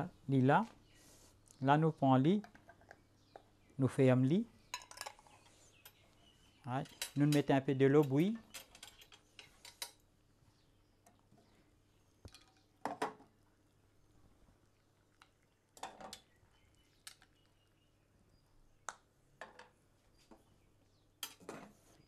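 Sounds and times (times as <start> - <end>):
glass jars clinking in water: 4.7 - 5.3.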